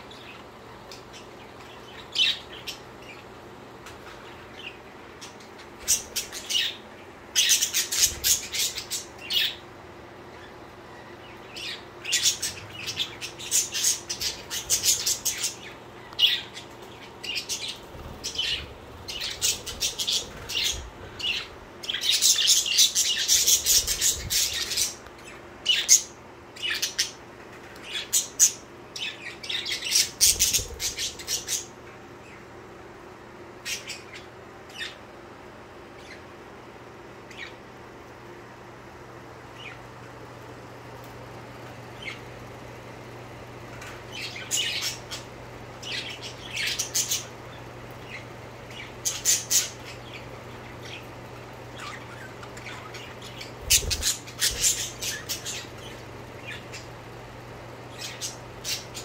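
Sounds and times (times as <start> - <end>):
budgerigars chirping: 11.3 - 25.0, 27.9 - 31.7, 44.1 - 45.2, 45.8 - 51.1, 51.7 - 56.9, 57.9 - 59.0.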